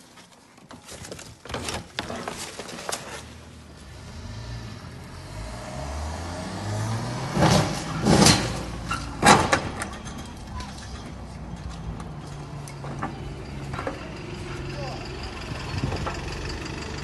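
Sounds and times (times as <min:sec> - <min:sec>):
car engine accelerating: 0:03.6 - 0:09.8.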